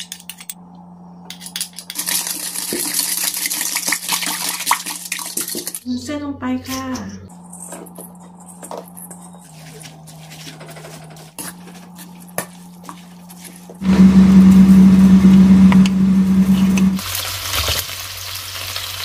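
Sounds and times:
pork sizzling in oil: 0:01.9 - 0:05.8, 0:17.0 - 0:19.0.

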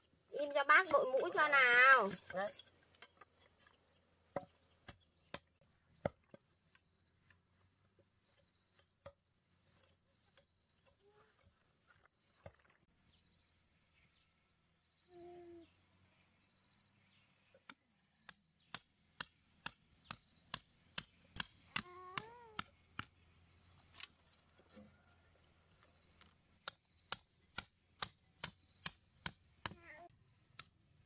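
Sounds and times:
hammer knocking stakes: 0:18.3 - 0:23.2.

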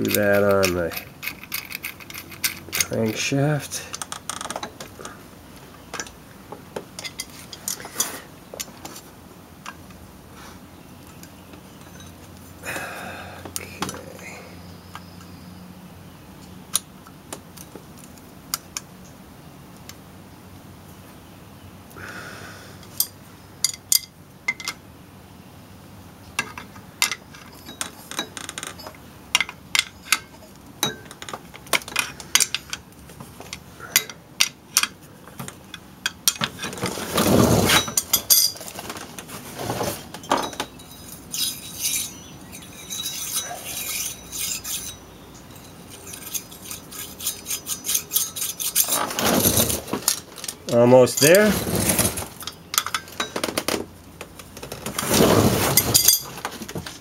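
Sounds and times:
metal tools clicking and clinking: 0:00.0 - 0:04.8, 0:07.0 - 0:08.7, 0:11.8 - 0:12.2, 0:22.9 - 0:24.8, 0:26.4 - 0:32.9, 0:33.5 - 0:36.7, 0:37.6 - 0:38.8, 0:40.2 - 0:53.6, 0:55.7 - 0:56.5.

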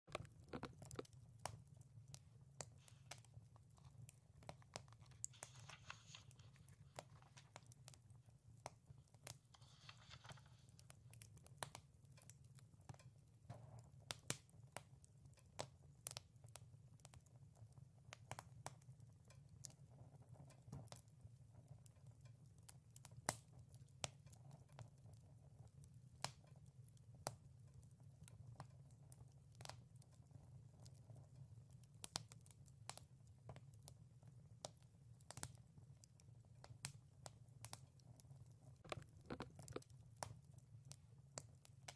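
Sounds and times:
wood fire crackling: 0:00.1 - 0:41.9
book pages turning: 0:04.8 - 0:07.6, 0:09.5 - 0:10.8.

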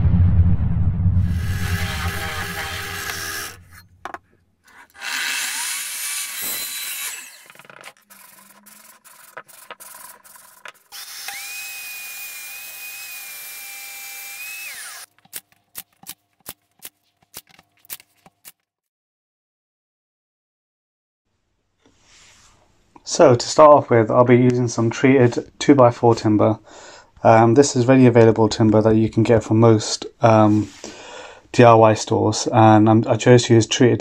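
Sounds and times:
drill press boring into wood: 0:01.5 - 0:03.8, 0:04.9 - 0:15.1.

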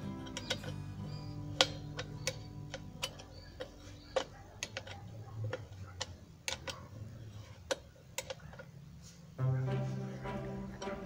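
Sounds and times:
fan being handled clicks: 0:00.0 - 0:06.9.

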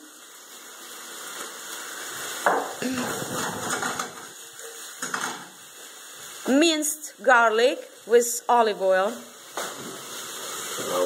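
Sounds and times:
chicken sizzling in a frying pan: 0:00.0 - 0:11.0
stirring and scraping in a pan: 0:00.4 - 0:06.6.

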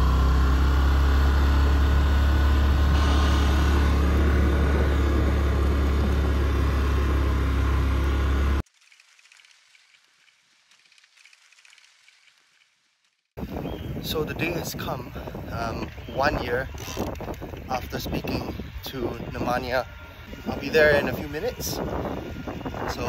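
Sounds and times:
quad bike engine running: 0:00.0 - 0:08.6, 0:15.4 - 0:23.0.

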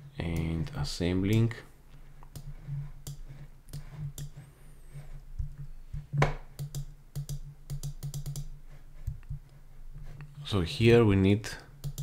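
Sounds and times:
low steady hum: 0:00.0 - 0:12.0
mouse and keyboard clicking: 0:02.2 - 0:04.4, 0:05.2 - 0:09.6, 0:11.8 - 0:12.0.

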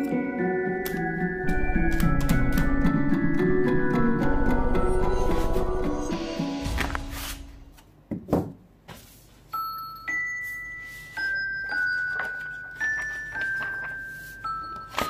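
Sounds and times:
slow bell-like notes: 0:00.0 - 0:06.7
background music: 0:00.0 - 0:07.8.

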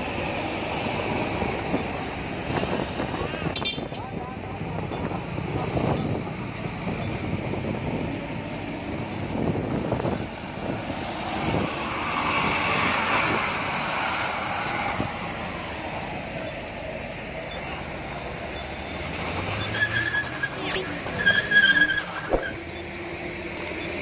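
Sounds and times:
road traffic noise: 0:00.0 - 0:24.0
truck engines: 0:00.0 - 0:24.0
wind buffeting microphone: 0:01.4 - 0:14.0.

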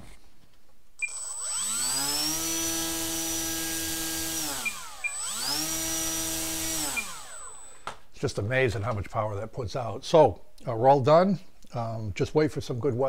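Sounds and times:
short beeps: 0:01.0 - 0:01.4, 0:04.6 - 0:05.4, 0:06.9 - 0:07.7
electric motor whining: 0:01.0 - 0:07.9.

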